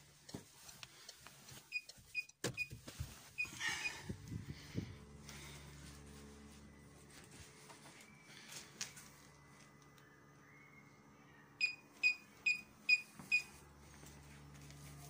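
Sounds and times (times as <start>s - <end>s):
parking sensor beeping: 11.6s - 13.6s.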